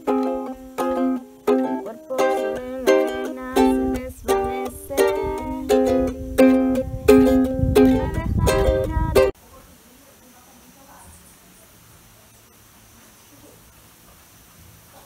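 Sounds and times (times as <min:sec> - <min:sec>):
ukulele strummed chords: 0:00.0 - 0:09.4.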